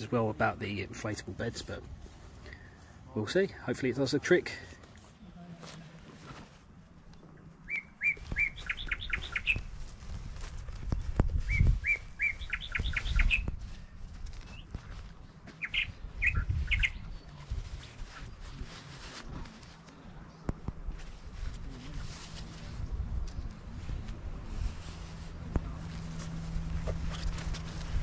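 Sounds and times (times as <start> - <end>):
songbird singing: 7.0 - 9.8, 11.4 - 18.4
low rumbling: 21.4 - 28.0.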